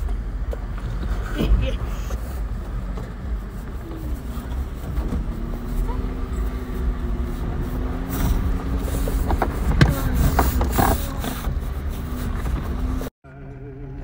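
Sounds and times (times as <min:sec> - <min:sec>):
vehicle body creaking and clicking: 0:00.0 - 0:05.7, 0:08.0 - 0:13.1
engine rumbling low: 0:00.0 - 0:14.0.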